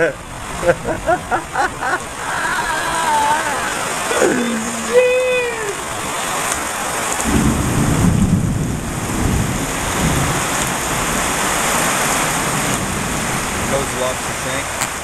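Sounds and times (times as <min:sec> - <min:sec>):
heavy rain hissing: 0:00.0 - 0:15.0
low rumble of thunder: 0:07.2 - 0:14.3.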